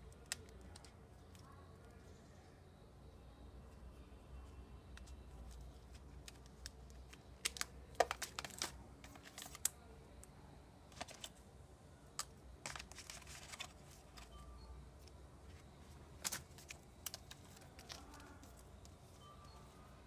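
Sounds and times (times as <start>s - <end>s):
plastic cases clicking: 5.9s - 9.7s.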